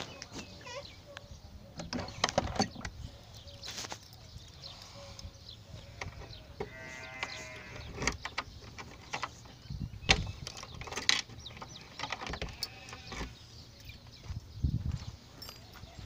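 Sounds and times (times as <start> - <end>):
livestock bleating: 5.9 - 7.9, 12.5 - 13.3.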